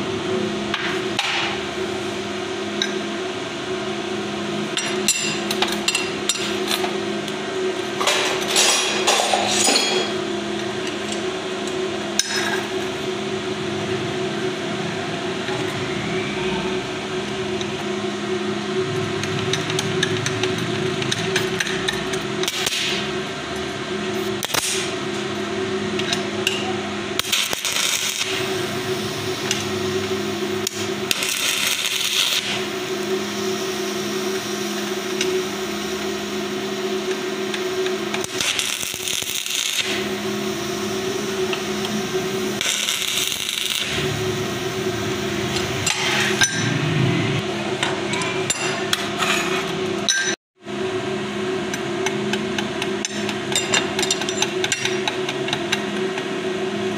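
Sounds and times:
electrical hum: 0.0 - 56.9
welding arc crackling: 18.7 - 23.4, 24.1 - 25.0, 27.1 - 47.6.

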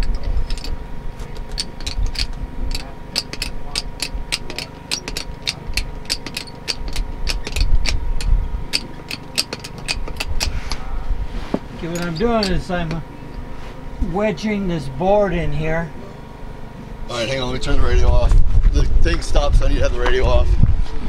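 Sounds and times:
jack clicking: 0.0 - 10.8, 11.8 - 13.0.

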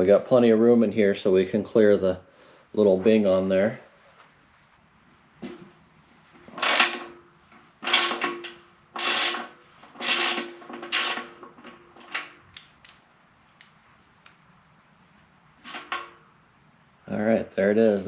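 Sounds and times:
socket wrench ratcheting: 6.6 - 7.0, 7.8 - 13.0.

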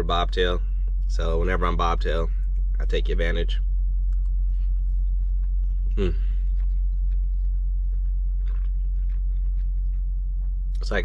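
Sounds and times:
steady low hum: 0.0 - 11.0
person chewing food: 4.1 - 10.8
person humming mm: 5.9 - 6.4.

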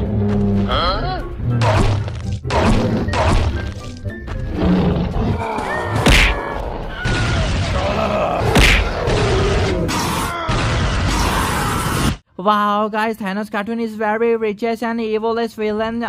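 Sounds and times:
background music: 0.0 - 6.9
punch and impact effects: 1.6 - 3.6, 6.0 - 6.4, 8.4 - 11.4.

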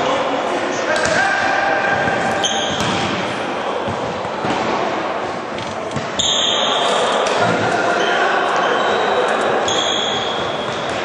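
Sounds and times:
players' voices: 0.0 - 11.0
ball bouncing and being struck: 2.6 - 4.9.

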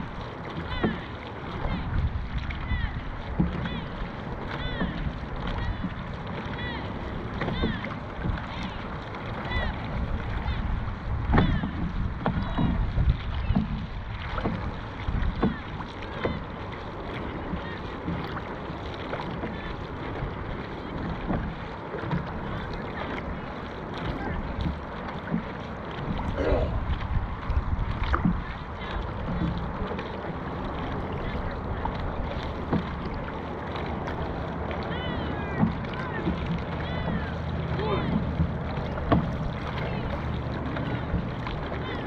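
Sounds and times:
wind noise on microphone: 0.0 - 16.6, 26.0 - 42.0
paddle strokes in water: 0.0 - 42.0.

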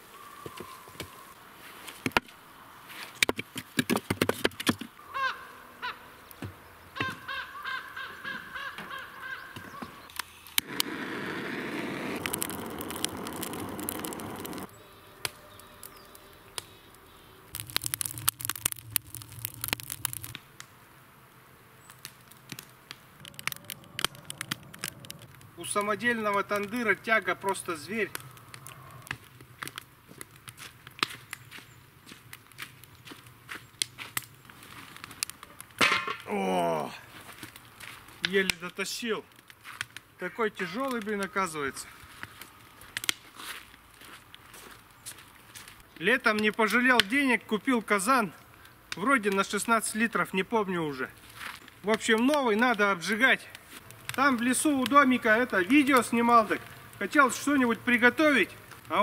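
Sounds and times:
fire crackling: 10.0 - 59.0
fire flames rushing: 10.5 - 14.8, 17.5 - 20.4, 22.0 - 31.4
footsteps on snow and leaves: 30.1 - 35.2, 37.1 - 38.2, 41.9 - 45.8, 51.1 - 51.7.

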